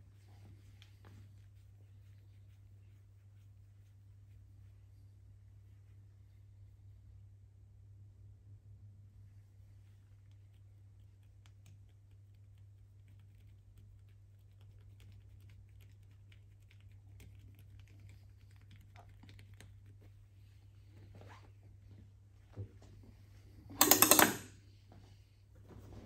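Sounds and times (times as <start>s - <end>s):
fingers rustling through hair: 0.0s - 5.0s
low steady hum: 0.0s - 26.0s.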